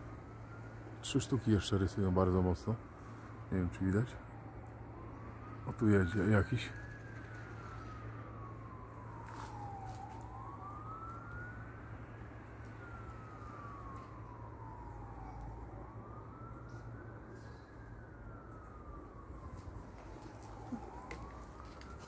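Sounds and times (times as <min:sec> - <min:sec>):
emergency vehicle siren wailing: 0:00.0 - 0:22.0.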